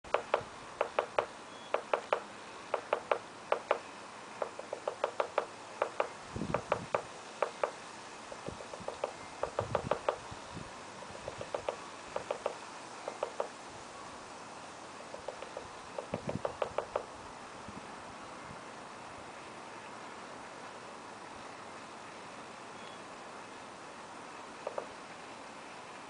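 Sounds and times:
woodpecker pecking on wood: 0.1 - 10.3, 11.1 - 13.6, 15.1 - 17.1, 24.6 - 25.0.

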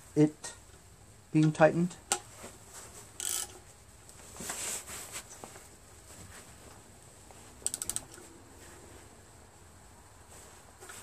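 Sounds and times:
socket wrench ratcheting: 3.2 - 3.6, 7.6 - 8.2.

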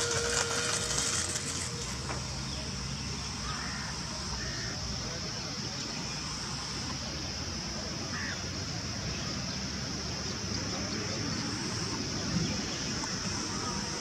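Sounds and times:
model plane motor whining: 0.0 - 2.5
outdoor hiss: 0.0 - 14.0.

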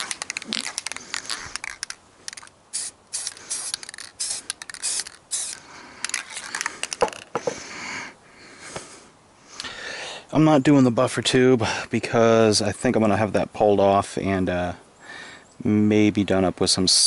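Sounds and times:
aerosol spray can hissing: 0.0 - 7.5.

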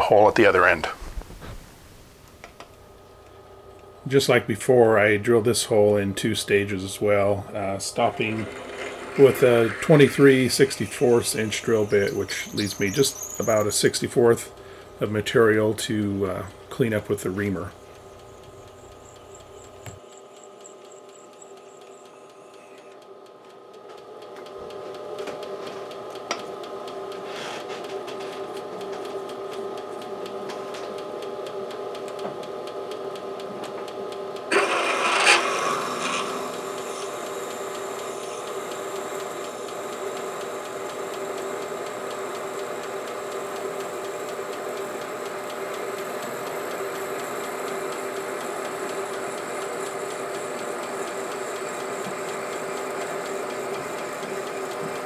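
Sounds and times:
metal lathe humming: 6.5 - 22.9, 34.5 - 55.0
reamer cutting metal: 7.6 - 13.9, 34.5 - 55.0.

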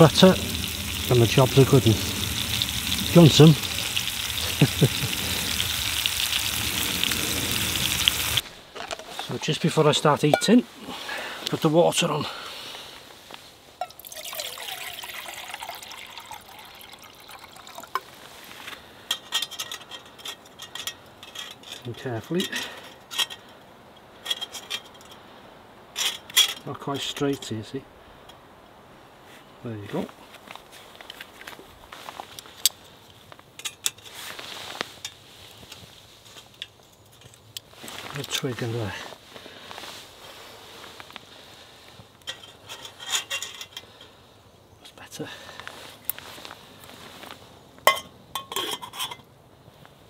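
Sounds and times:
water poured into metal pot: 0.0 - 8.4, 13.8 - 18.4
pot scraping: 0.0 - 10.6, 42.3 - 43.9, 47.9 - 49.2
metallic clinks of pot: 10.3 - 10.6, 13.8 - 18.0, 19.1 - 23.4, 47.9 - 49.3
metal pot clinking and knocking: 47.9 - 49.2.

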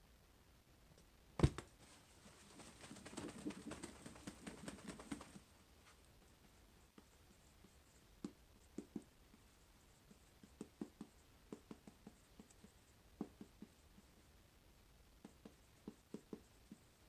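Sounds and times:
pen scratching on notepad: 6.9 - 14.1, 15.2 - 16.9.

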